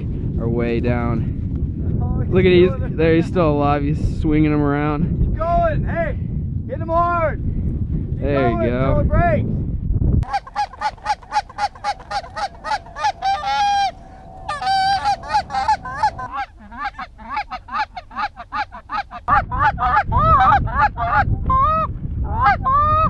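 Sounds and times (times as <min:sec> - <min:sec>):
goose honking: 0:10.2 - 0:20.0.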